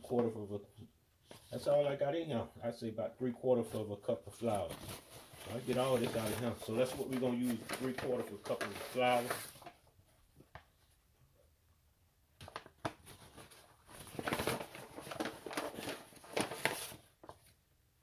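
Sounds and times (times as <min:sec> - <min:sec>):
paper bag crinkling and rustling: 0:04.4 - 0:09.8, 0:12.4 - 0:17.6.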